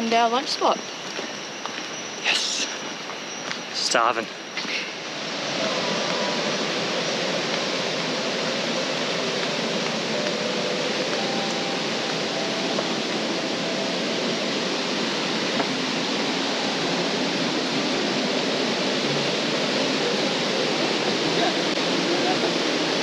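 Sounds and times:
waterfall rushing: 3.8s - 23.0s
fast-flowing river: 4.9s - 23.0s.

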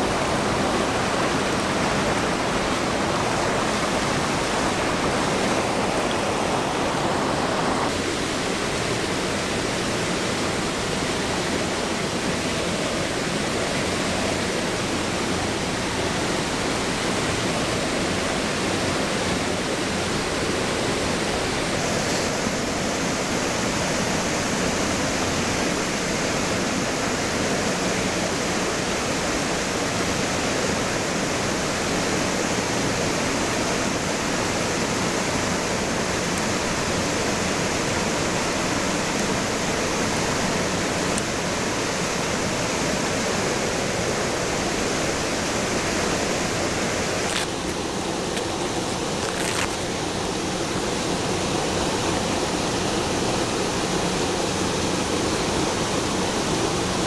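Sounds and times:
small waterfall rushing: 0.0s - 57.0s.

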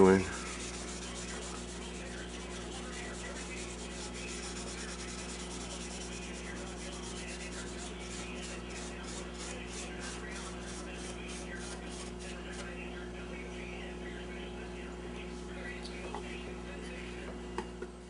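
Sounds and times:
steel wool rubbing wood: 0.0s - 12.7s.

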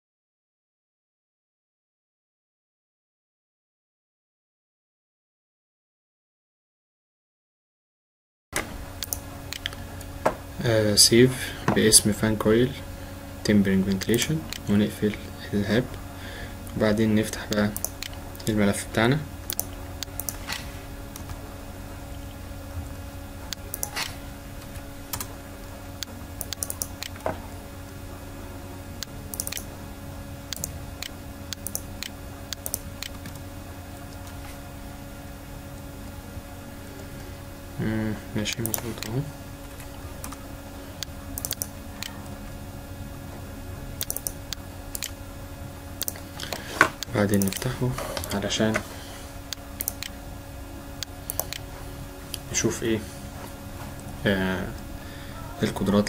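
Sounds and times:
low electrical hum: 8.6s - 56.0s
computer mouse clicks: 9.0s - 9.8s, 17.5s - 18.5s, 19.5s - 21.4s, 23.5s - 24.2s, 26.4s - 27.2s, 29.0s - 29.7s, 30.5s - 33.4s, 41.0s - 42.2s, 44.0s - 45.2s, 46.0s - 48.4s, 49.5s - 50.2s, 51.0s - 51.7s.

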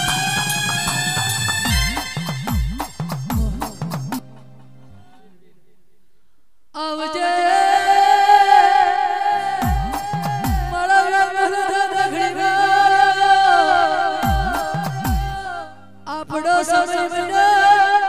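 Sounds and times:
deep electronic drum hits: 1.7s - 4.2s, 9.6s - 10.8s, 14.2s - 15.4s
person singing long ornamented note: 6.7s - 18.0s.

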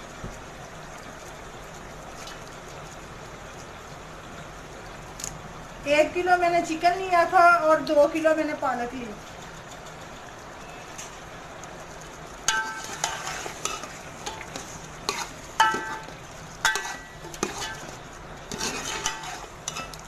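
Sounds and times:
chicken sizzling in a pot: 0.0s - 20.0s
metal ladle knocking a pot: 15.6s - 16.1s.

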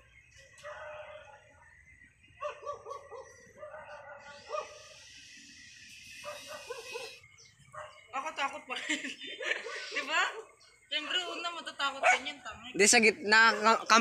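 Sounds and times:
dog barking: 2.4s - 4.9s, 6.2s - 8.1s, 12.0s - 12.4s, 13.4s - 14.0s.

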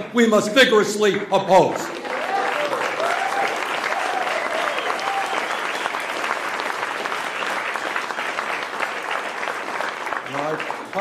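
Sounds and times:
audience applauding: 1.6s - 11.0s
audience cheering: 1.9s - 9.6s.

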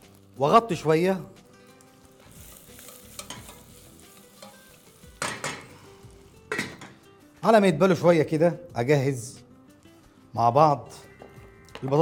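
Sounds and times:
vegetables sizzling in oil: 1.8s - 6.9s.

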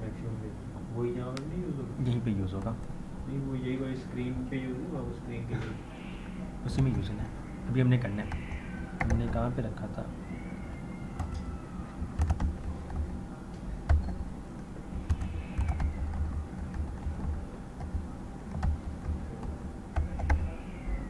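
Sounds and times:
keyboard keys clacking: 6.6s - 21.0s.

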